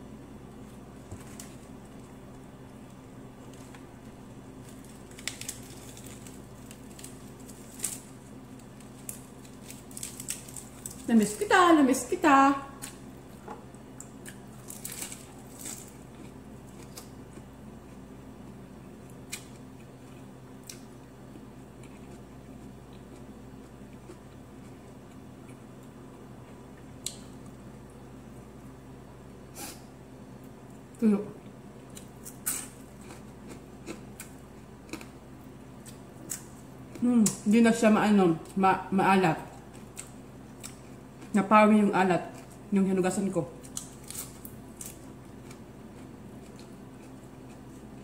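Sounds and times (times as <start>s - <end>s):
steady low hum: 0.0s - 48.0s
lettuce leaves tearing: 4.6s - 11.3s, 14.2s - 16.0s, 43.6s - 45.0s.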